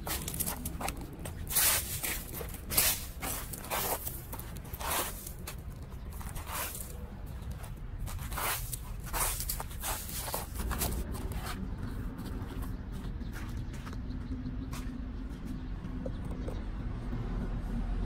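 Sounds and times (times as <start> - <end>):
footsteps crunching through dry leaves: 0.0 - 13.9.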